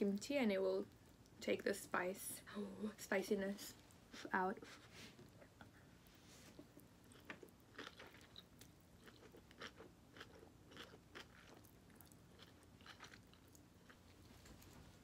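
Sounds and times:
person chewing and slurping noodles: 0:06.6 - 0:14.3.

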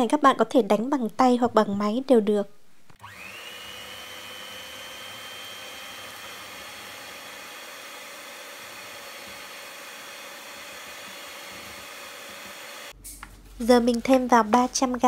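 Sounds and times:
electric hand mixer whining: 0:03.0 - 0:13.0.

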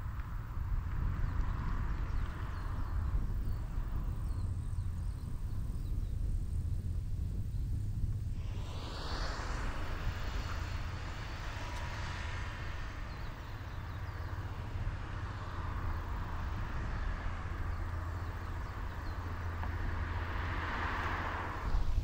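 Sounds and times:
car approaching on road: 0:00.0 - 0:22.0
steady low rumble: 0:00.0 - 0:22.0.

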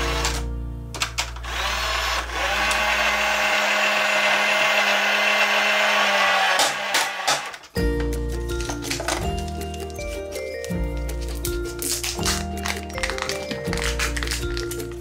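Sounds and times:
small electric motor whirring: 0:01.4 - 0:07.3.

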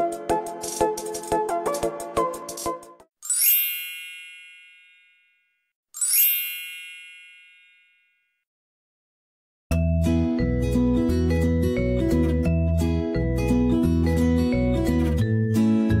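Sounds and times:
bright chime sound effect: 0:03.2 - 0:08.3.

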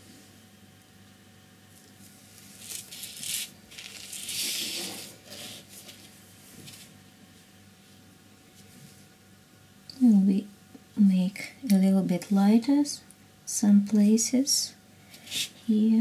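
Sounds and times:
paper sliding on tabletop: 0:04.0 - 0:06.9.

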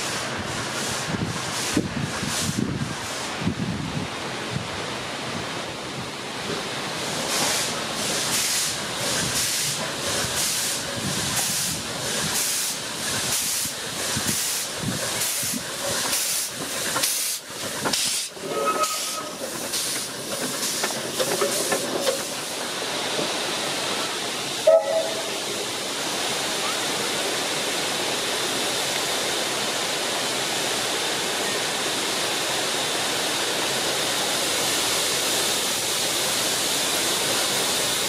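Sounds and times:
steam hissing: 0:00.0 - 0:03.7, 0:06.4 - 0:38.0
steam locomotive exhaust chuffs: 0:07.0 - 0:25.8.

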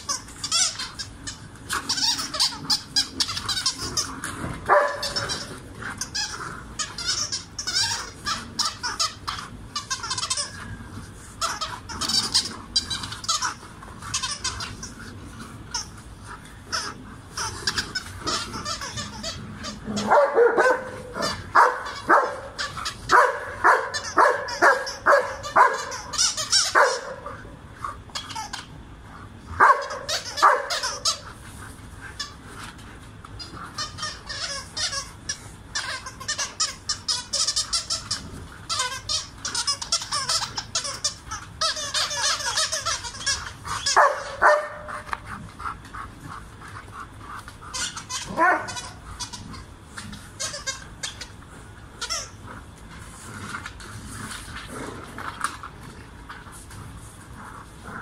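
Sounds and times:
dogs barking: 0:04.6 - 0:07.3, 0:18.2 - 0:27.5, 0:29.6 - 0:31.3, 0:43.7 - 0:46.3, 0:47.7 - 0:49.0.

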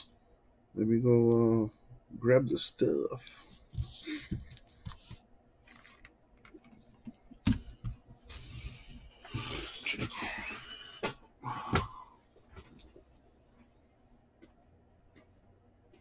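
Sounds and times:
rustling and scraping: 0:04.6 - 0:10.2.

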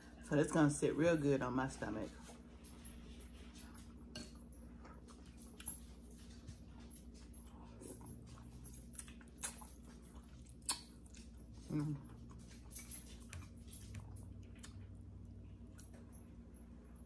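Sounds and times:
people slurping and chewing noodles: 0:02.3 - 0:16.1
wet eating smacks: 0:08.8 - 0:12.4.

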